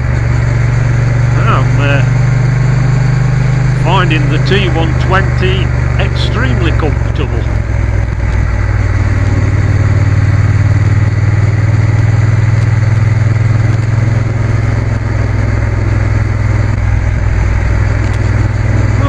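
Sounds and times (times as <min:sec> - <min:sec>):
motorcycle engine cruising: 0:00.0 - 0:19.0.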